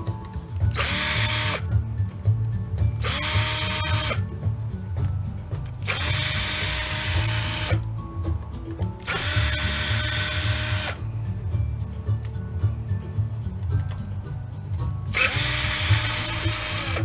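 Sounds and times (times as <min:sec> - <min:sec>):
cordless drill whining: 0:00.7 - 0:01.7, 0:03.0 - 0:04.3, 0:05.8 - 0:07.8, 0:09.0 - 0:11.0, 0:15.1 - 0:17.0.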